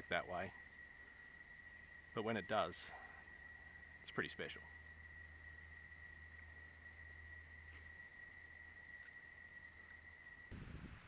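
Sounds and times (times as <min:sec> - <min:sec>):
insects droning: 0:00.0 - 0:11.0
thin steady whine: 0:00.0 - 0:11.0
wind gust on microphone: 0:10.5 - 0:11.0.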